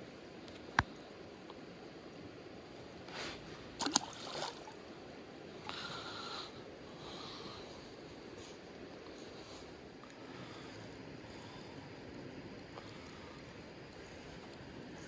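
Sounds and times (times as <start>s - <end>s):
creek water running: 2.8s - 6.0s
water splash: 3.8s - 4.8s.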